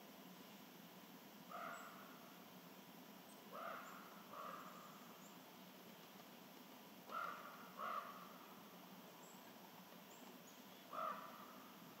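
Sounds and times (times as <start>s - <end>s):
faint outdoor background: 0.0s - 12.0s
crow cawing: 1.5s - 2.1s, 3.5s - 4.9s, 7.1s - 8.4s, 10.9s - 11.7s.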